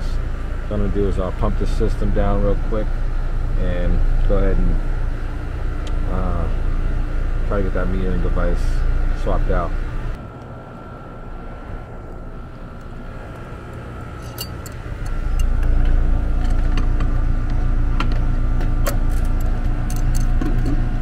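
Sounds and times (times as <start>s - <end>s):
air conditioning unit humming: 0.0s - 21.0s.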